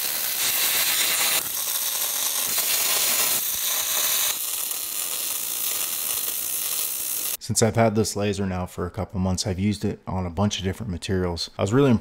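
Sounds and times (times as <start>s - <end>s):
welding arc crackling and sizzling: 0.0s - 7.4s.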